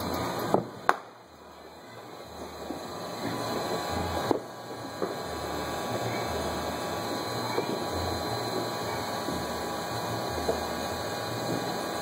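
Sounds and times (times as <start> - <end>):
distant fireworks rumbling and crackling: 0.0 - 9.8
sharp firecracker pops: 0.4 - 1.2, 4.2 - 5.2.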